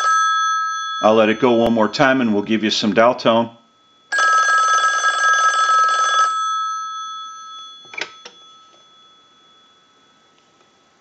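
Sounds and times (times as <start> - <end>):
telephone bell ringing: 0.0 - 1.6, 4.1 - 10.2.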